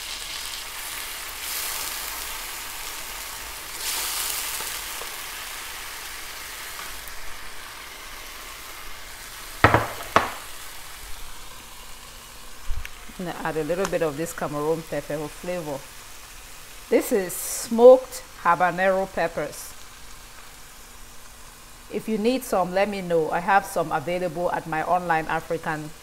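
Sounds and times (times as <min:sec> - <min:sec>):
stew sizzling in a pot: 0:00.0 - 0:26.0
sharp knocks: 0:09.6 - 0:10.5.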